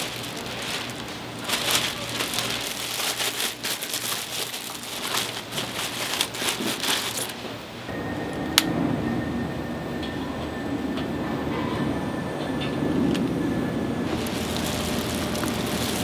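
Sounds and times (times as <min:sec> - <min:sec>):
plastic bag crinkling: 0:00.0 - 0:07.5, 0:14.1 - 0:16.0.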